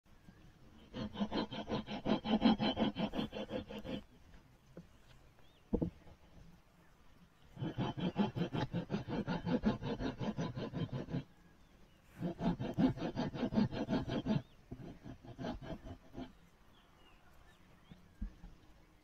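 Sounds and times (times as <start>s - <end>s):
steel blade scraping wood: 0.9s - 4.1s, 7.6s - 11.2s, 12.2s - 16.4s.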